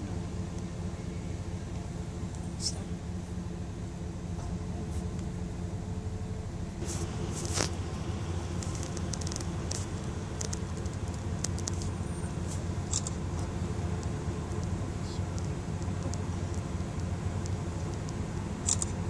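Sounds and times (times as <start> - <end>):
car engine hum and road noise: 0.0 - 19.0
brief rustle: 6.8 - 7.8.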